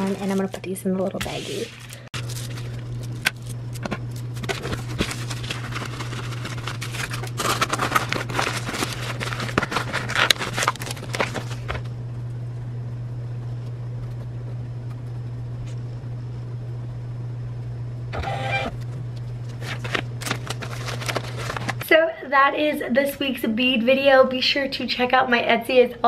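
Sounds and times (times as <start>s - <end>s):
steady low hum: 0.0s - 26.0s
plastic packaging crinkling: 1.6s - 11.9s, 19.6s - 21.9s.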